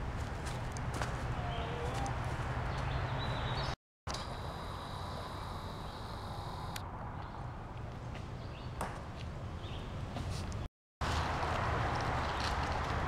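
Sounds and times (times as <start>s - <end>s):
footsteps on dirt and leaves: 0.0s - 3.5s, 11.0s - 13.0s
faint high whine: 4.1s - 6.8s.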